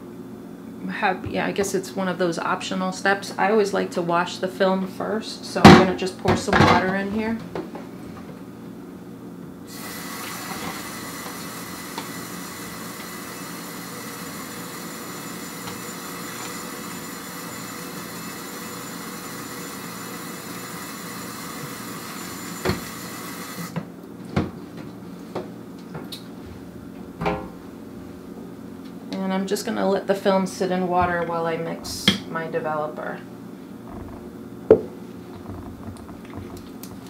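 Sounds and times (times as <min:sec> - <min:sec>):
water running from hose into tank: 0:09.7 - 0:23.8.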